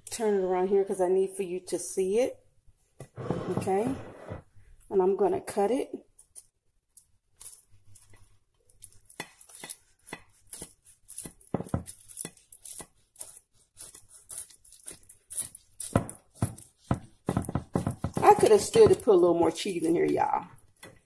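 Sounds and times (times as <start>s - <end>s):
knife cutting crispy food: 7.4s - 19.2s.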